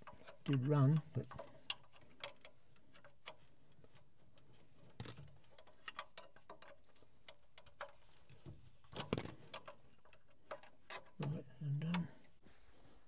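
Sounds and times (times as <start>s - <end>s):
spanner clicking on metal nuts: 5.4s - 8.0s, 8.9s - 11.3s.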